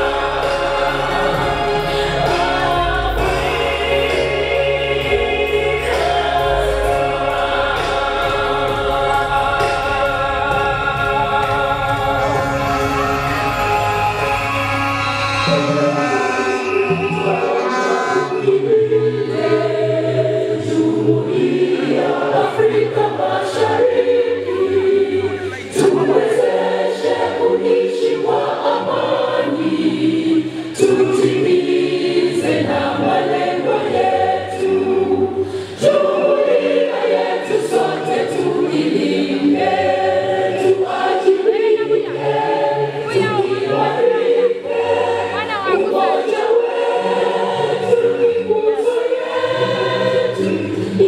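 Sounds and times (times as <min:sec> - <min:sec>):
choir singing: 0:00.0 - 0:51.0.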